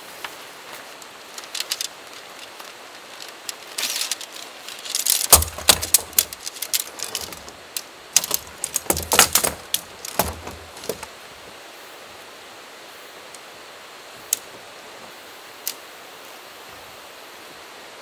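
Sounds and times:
rustle: 0.0 - 18.0
tent poles clicking together: 0.2 - 11.1
heavier knocks: 5.0 - 7.6, 8.2 - 11.1.

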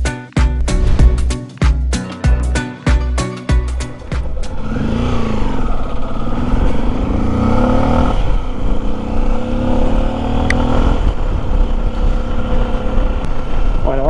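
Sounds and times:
road rumble: 0.0 - 14.0
wind: 3.5 - 14.0
motorcycle engine pulling: 3.9 - 14.0.

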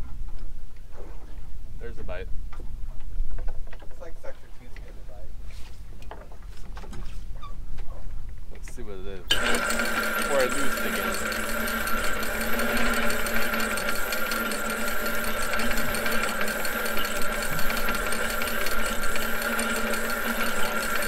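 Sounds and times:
boat engine humming: 9.3 - 21.0
fast even ticking: 9.3 - 21.0.

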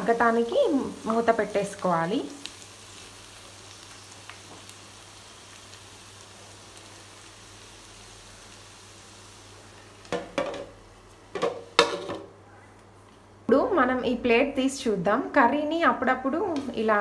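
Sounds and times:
food sizzling in a pan: 0.0 - 12.1
plate clattering on pan: 10.1 - 10.7, 11.4 - 12.3.

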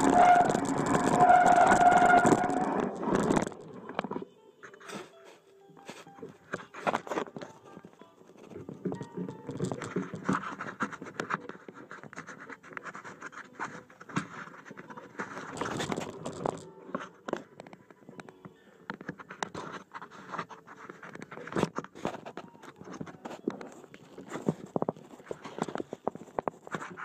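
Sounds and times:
rubbing on microphone: 0.0 - 4.0, 8.4 - 17.5, 19.1 - 27.0
stones and grit scraping: 0.0 - 4.0.

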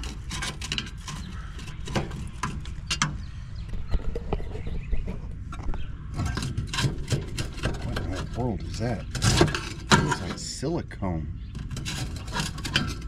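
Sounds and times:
clicks and rattles of sheet metal: 0.0 - 3.3, 6.2 - 10.5, 11.5 - 13.0.

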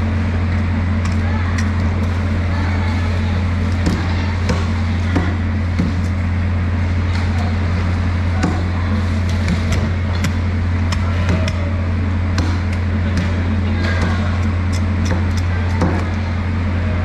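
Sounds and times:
low machine hum: 0.0 - 17.0
cleaver chopping fish: 3.8 - 6.2, 8.4 - 11.8, 12.4 - 16.2.

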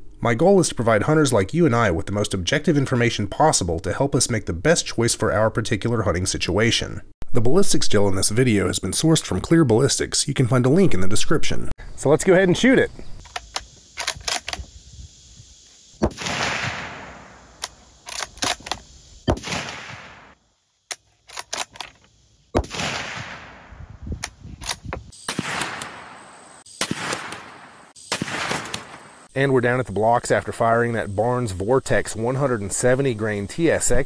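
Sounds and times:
sharp rifle bolt clicks: 13.2 - 14.7, 17.5 - 20.1, 20.9 - 23.3, 24.2 - 26.1, 28.2 - 29.0
rifle shots echoing: 16.0 - 17.6, 19.3 - 20.4, 22.6 - 23.8, 25.2 - 29.3.

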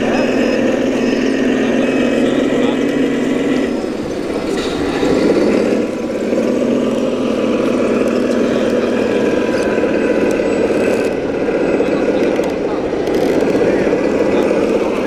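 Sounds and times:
simulated diesel engine drone: 0.0 - 15.0.

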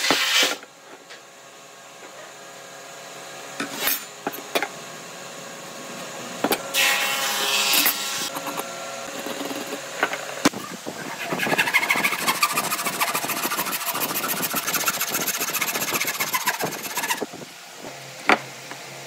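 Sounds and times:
metal scraping on wood: 11.0 - 17.2.

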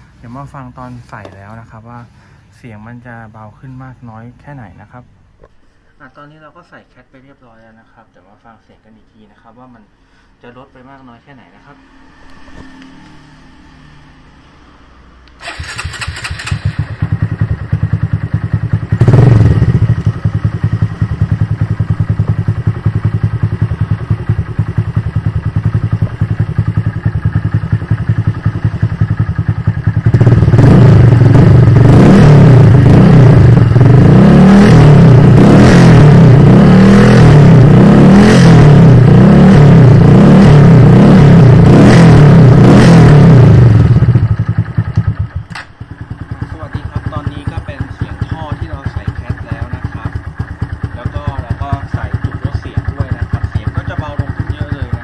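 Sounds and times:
motorcycle engine revving: 11.6 - 55.0.

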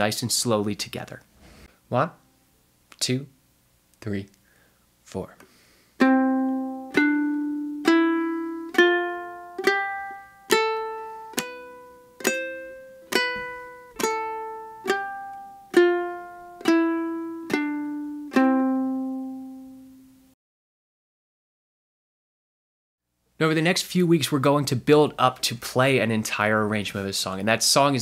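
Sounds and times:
ukulele single notes: 6.0 - 20.1.

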